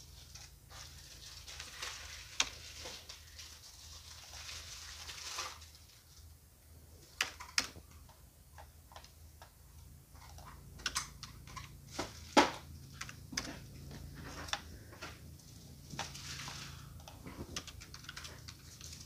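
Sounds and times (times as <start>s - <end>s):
faint low hum: 0.0s - 19.0s
computer keyboard typing: 15.9s - 19.0s.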